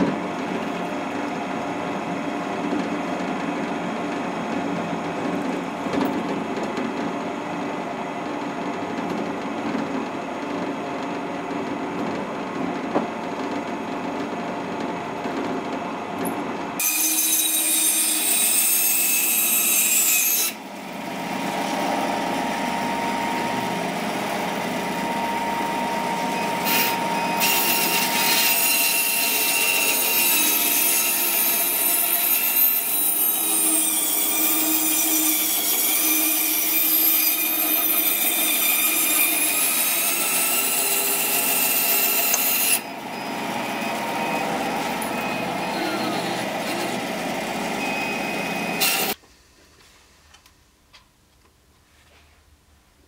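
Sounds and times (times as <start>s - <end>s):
bandsaw cutting wood: 26.3s - 42.8s, 48.8s - 49.2s.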